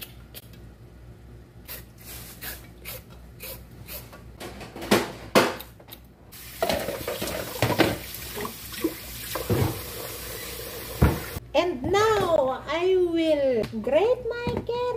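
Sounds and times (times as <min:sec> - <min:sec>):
tap water running into sink: 0:06.4 - 0:11.4.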